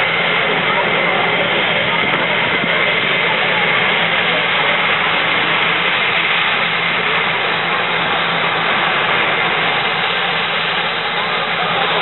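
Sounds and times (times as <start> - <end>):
jet engine running: 0.0 - 12.0.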